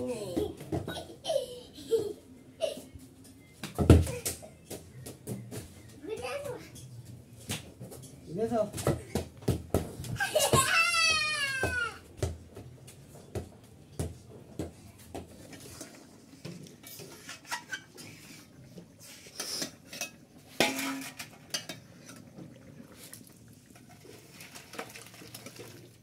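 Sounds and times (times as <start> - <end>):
metal spatula scraping wok: 16.8 - 22.2.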